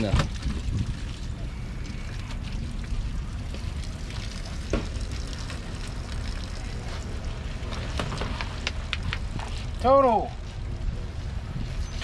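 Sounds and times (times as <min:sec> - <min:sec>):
wind on microphone: 0:00.0 - 0:03.4, 0:08.0 - 0:12.0
water splashing: 0:00.0 - 0:10.5.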